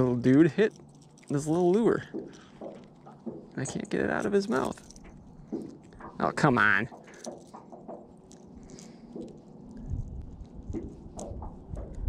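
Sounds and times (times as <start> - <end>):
hands clicking and rustling: 0.0 - 12.0
wind rumble on microphone: 8.6 - 12.0.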